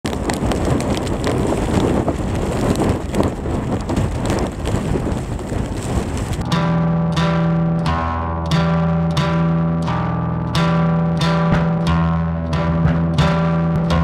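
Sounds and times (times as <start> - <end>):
wind buffeting microphone: 0.0 - 6.8
music with sustained notes: 6.4 - 14.0.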